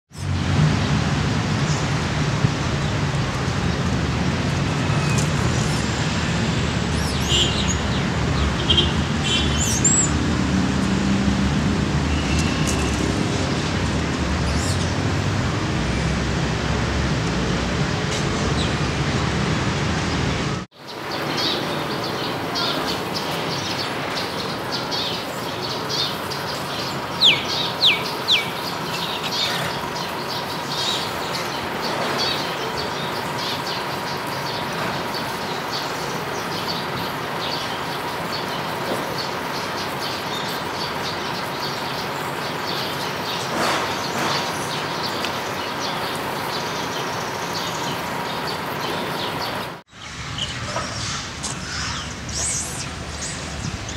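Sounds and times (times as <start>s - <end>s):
bird chirps: 21.2s - 36.8s, 37.5s - 53.9s.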